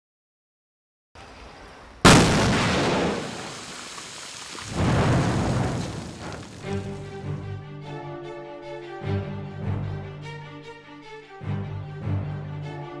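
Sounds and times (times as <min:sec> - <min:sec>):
rock blast boom: 0:02.0 - 0:07.4
rumble: 0:04.7 - 0:07.5
music with held notes: 0:06.8 - 0:13.0.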